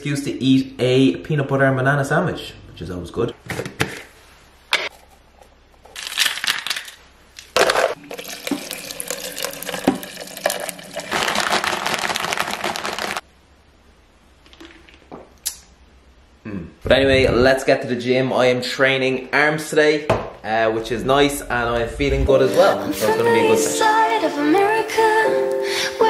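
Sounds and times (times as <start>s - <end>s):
tap water splashing into bottle: 8.1s - 10.6s.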